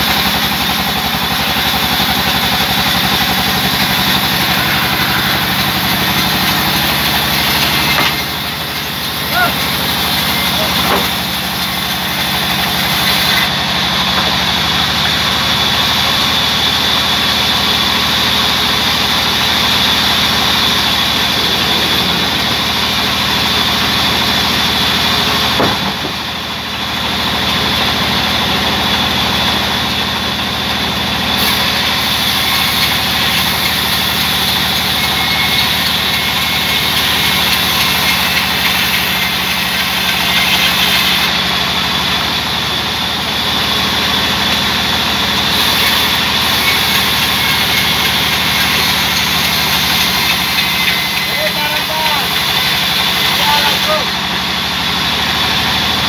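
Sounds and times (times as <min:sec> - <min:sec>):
band sawmill humming and whining: 0:00.0 - 0:56.0.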